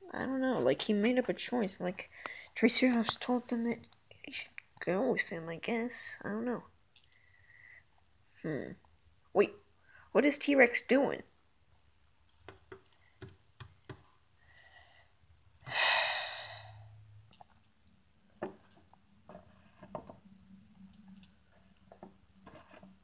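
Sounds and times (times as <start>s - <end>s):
plastic figures tapping on wood: 12.4s - 14.1s
breathy sigh: 15.7s - 17.0s.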